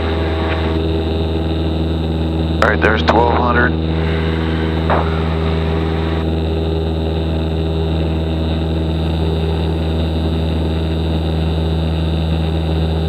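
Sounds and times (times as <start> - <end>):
airplane engine droning: 0.0 - 13.0.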